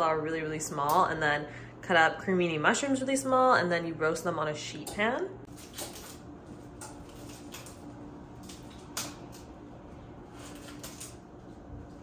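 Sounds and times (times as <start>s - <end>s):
faint steady hum: 0.0s - 12.0s
leaves snapping off: 6.8s - 9.5s.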